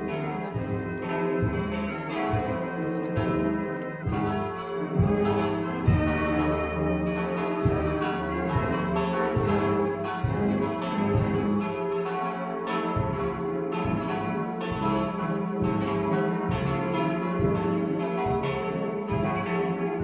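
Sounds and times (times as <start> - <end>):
church bells ringing: 0.0 - 20.0.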